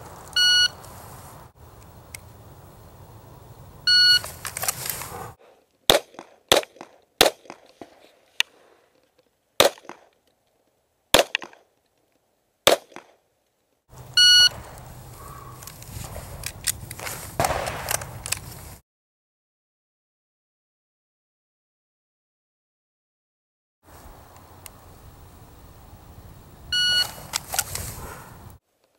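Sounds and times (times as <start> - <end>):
clattering and handling noise: 4.2 - 5.8, 15.6 - 18.8
handgun shots: 5.9 - 7.9, 9.6 - 10.1, 11.1 - 11.6, 12.6 - 13.2, 17.4 - 18.4
shot timer beeps: 14.2 - 14.5.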